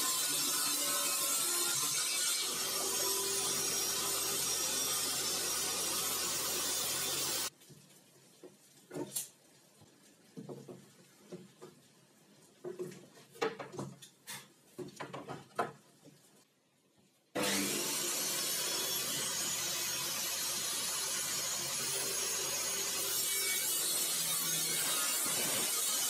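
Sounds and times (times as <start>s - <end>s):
table saw running: 17.4s - 26.0s.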